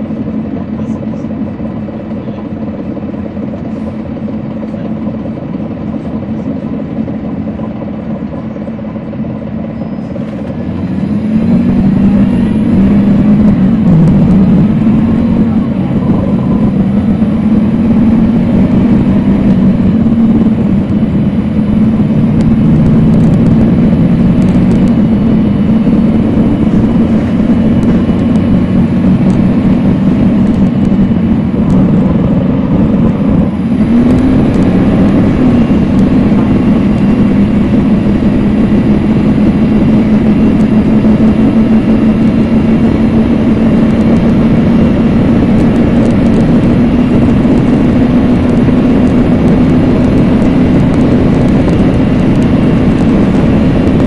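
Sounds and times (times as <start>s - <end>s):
bus diesel engine drone: 0.0s - 54.0s.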